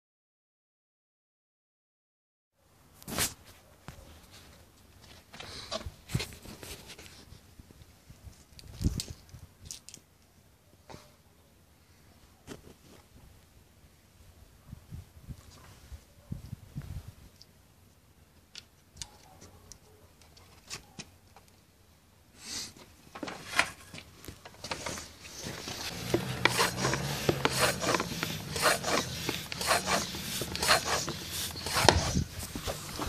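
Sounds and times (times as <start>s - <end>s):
rasping pump strokes: 24.7s - 33.0s.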